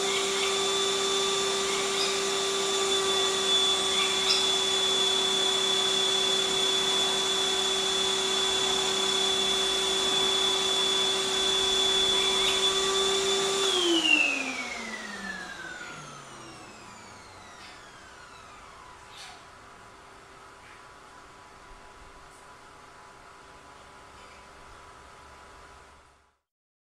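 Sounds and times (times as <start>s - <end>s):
vacuum cleaner motor whine: 0.0s - 20.1s.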